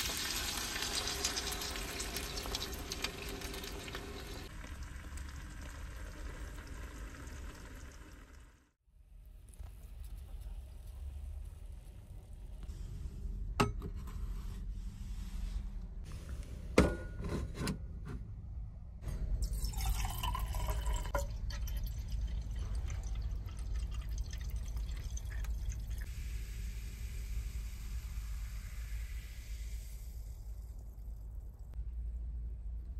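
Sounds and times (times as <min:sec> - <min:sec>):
liquid pouring into metal mug: 0:19.4 - 0:26.1.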